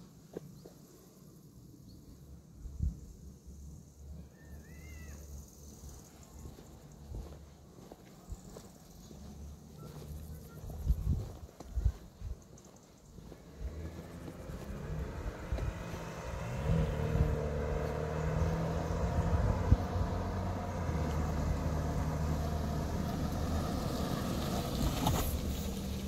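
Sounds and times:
vehicle engine running: 0:04.6 - 0:26.0.

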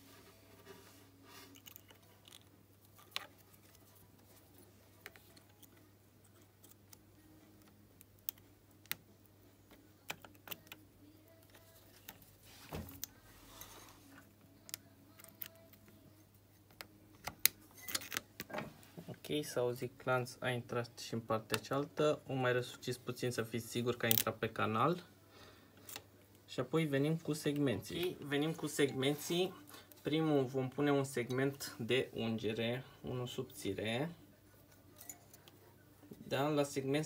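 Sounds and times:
pliers clicking on metal: 0:10.0 - 0:10.8, 0:14.7 - 0:15.9, 0:16.6 - 0:18.2, 0:35.0 - 0:35.5.

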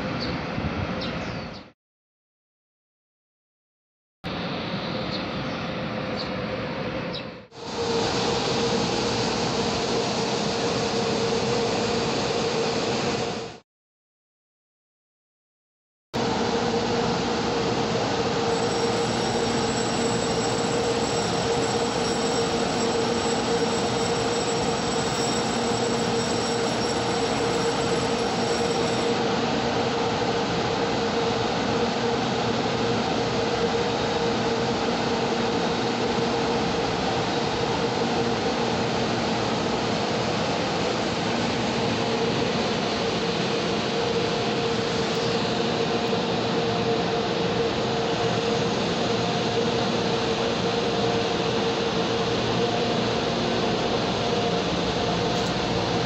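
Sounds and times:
train running rumble: 0:16.3 - 0:31.2
faint high whine: 0:17.2 - 0:29.2.

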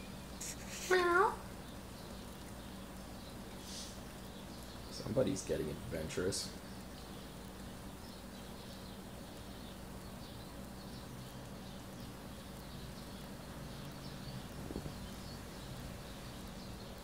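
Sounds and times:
light rain hiss: 0:00.0 - 0:17.0.

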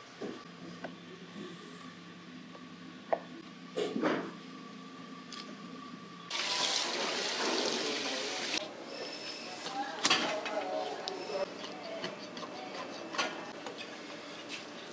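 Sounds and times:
tap water running into sink: 0:06.3 - 0:08.6.

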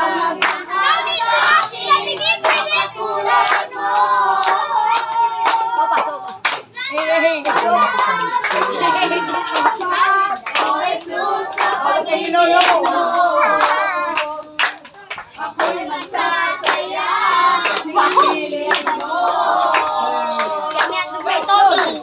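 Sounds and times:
children singing: 0:00.0 - 0:06.4, 0:07.6 - 0:22.0
hands clapping in time: 0:12.4 - 0:16.8.

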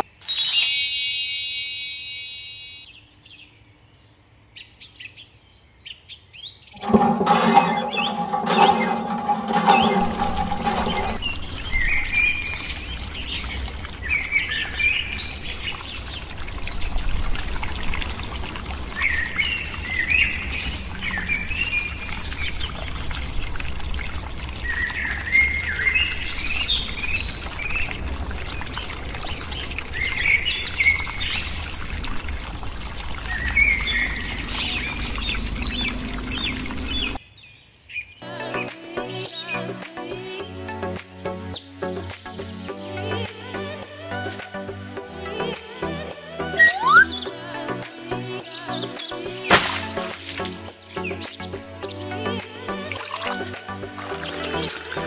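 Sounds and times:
water pouring into pond: 0:06.8 - 0:37.2, 0:49.4 - 0:55.0
birds chirping: 0:33.2 - 0:38.1.

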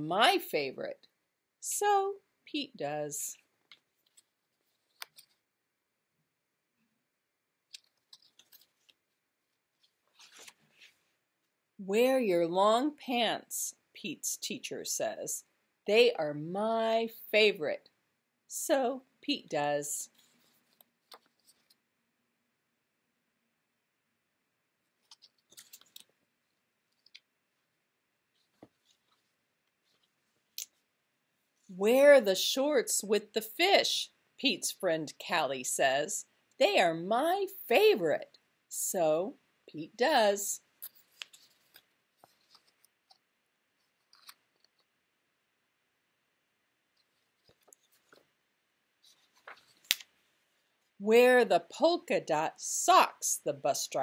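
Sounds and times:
book pages rustling: 0:03.6 - 0:05.5, 0:07.7 - 0:11.2, 0:20.1 - 0:21.9, 0:24.9 - 0:30.9, 0:40.8 - 0:45.0, 0:46.8 - 0:48.4, 0:49.0 - 0:50.9.

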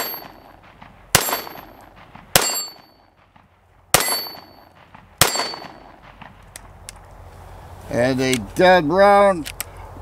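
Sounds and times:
metallic ring of steel target: 0:00.0 - 0:03.2, 0:03.9 - 0:06.0
pistol shots: 0:00.0 - 0:06.4.

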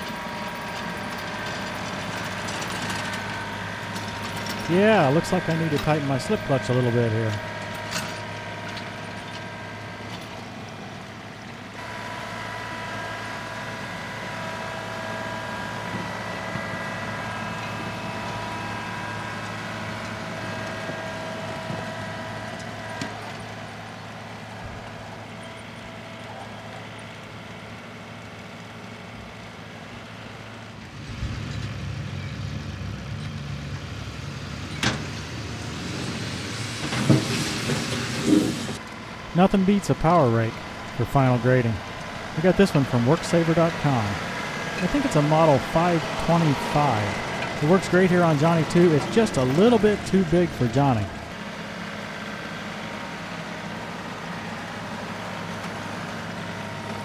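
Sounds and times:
power rake through soil: 0:00.0 - 0:10.5, 0:35.4 - 0:51.4
steady whine: 0:00.0 - 0:25.2, 0:38.2 - 0:51.6
tractor diesel engine running: 0:00.0 - 0:57.0.

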